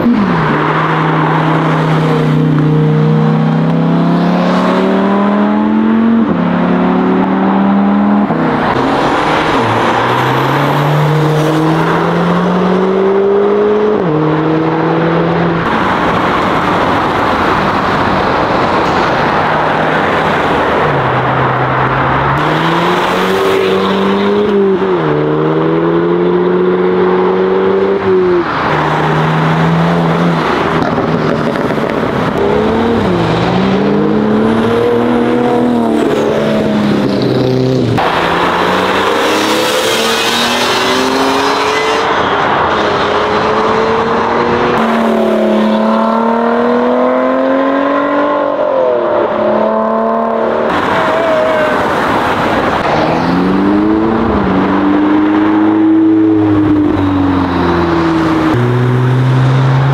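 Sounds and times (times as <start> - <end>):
cars accelerating with gear changes: 0.0 - 59.9.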